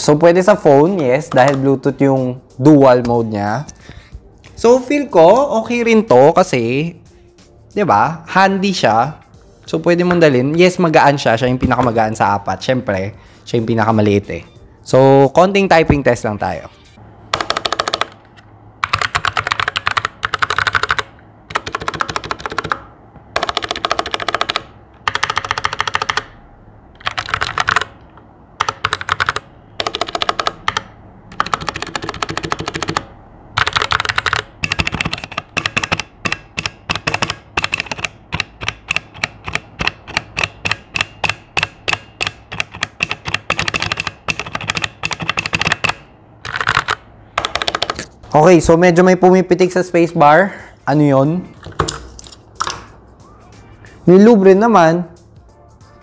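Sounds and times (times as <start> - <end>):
mechanical keyboard typing: 17.3 - 18.2, 18.8 - 26.4, 27.0 - 28.0, 28.6 - 48.1.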